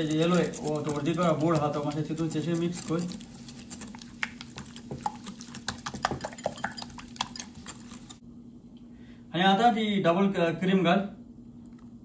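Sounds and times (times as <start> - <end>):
whisk clicking against glass bowl: 0.0 - 8.2.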